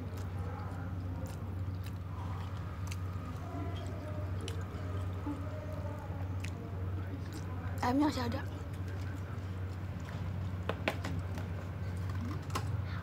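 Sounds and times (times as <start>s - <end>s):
person chewing food: 0.0s - 5.2s
steady low hum: 0.0s - 13.0s.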